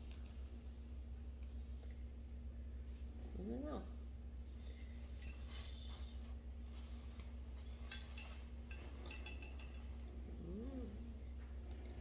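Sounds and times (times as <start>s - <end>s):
steady low hum: 0.0s - 12.0s
small clicks and clinks: 7.2s - 10.2s, 11.4s - 12.0s.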